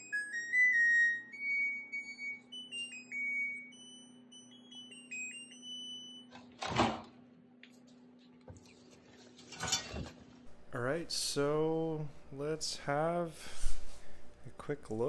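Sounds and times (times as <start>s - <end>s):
electronic beep tune: 0.0s - 6.4s
washer door thud: 6.6s - 7.1s.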